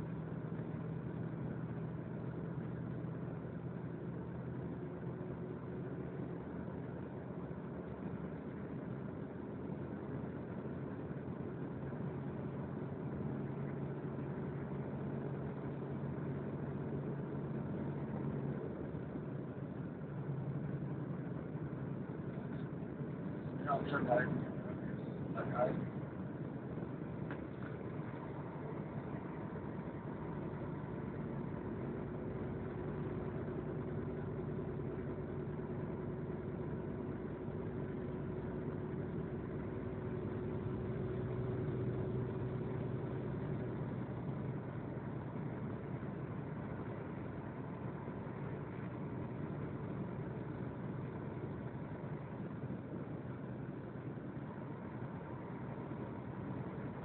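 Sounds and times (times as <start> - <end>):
road noise: 0.0 - 57.0
vehicle engine drone: 0.0 - 57.0
steady humming tones: 20.1 - 34.1.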